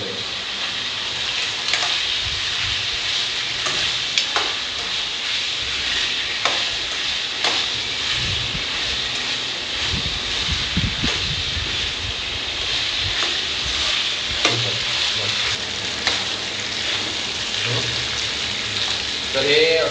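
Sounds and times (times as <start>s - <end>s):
chicken sizzling in hot oil: 0.0s - 19.9s.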